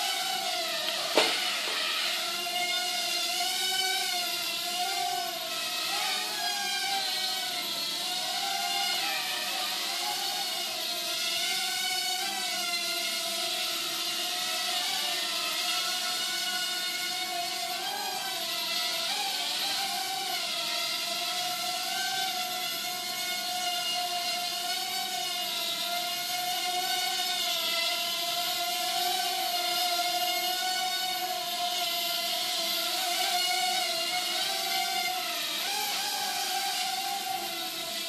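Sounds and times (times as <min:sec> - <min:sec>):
quadcopter propellers whining: 0:00.0 - 0:38.0.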